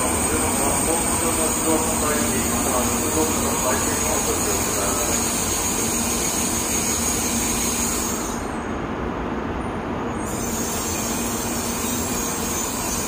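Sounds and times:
train rolling and braking: 0.0s - 13.0s.

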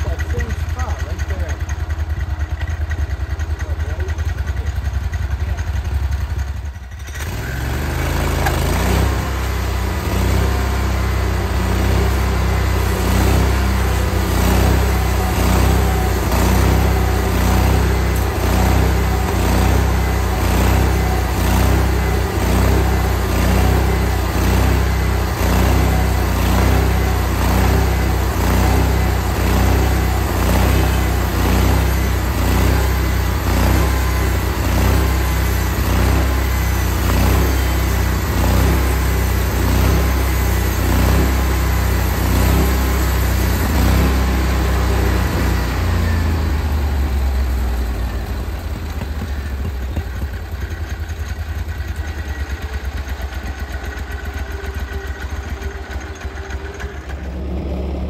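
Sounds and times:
sawmill engine running: 0.0s - 58.0s
band blade sawing through log: 7.7s - 45.9s.

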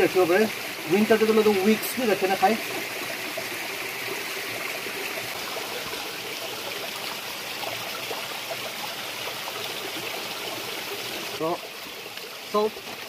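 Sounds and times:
stream rushing: 0.0s - 13.0s.

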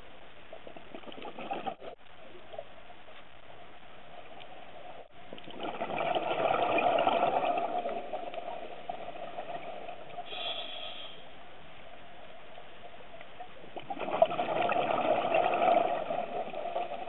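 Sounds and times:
underwater bubbles gurgling: 0.3s - 10.4s, 11.4s - 17.0s
underwater hiss: 10.1s - 11.4s.

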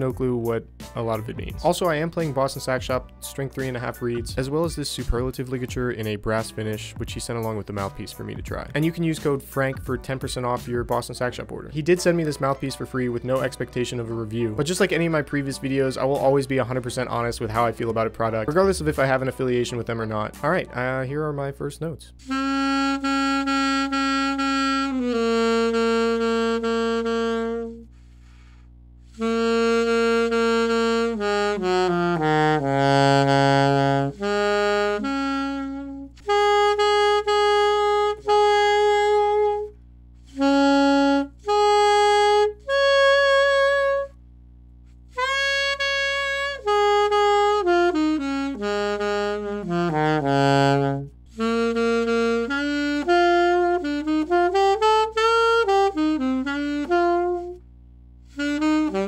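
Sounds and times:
solo alto saxophone: 22.2s - 44.2s, 45.1s - 59.0s.

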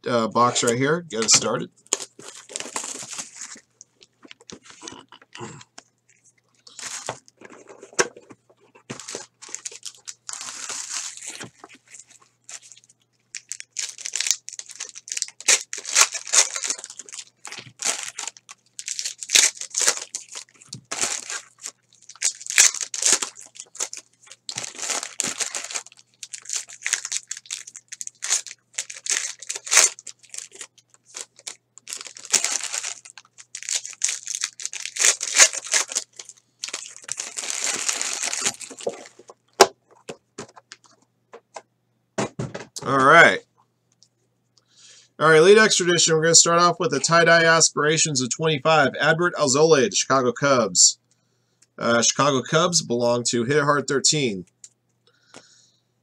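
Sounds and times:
foil wrappers tearing and crinkling: 1.3s - 3.6s, 6.7s - 7.9s, 8.9s - 39.4s.

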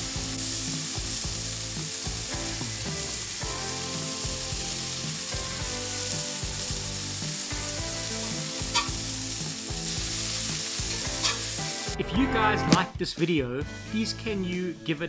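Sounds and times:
burger patties sizzling on griddle: 0.0s - 12.0s.

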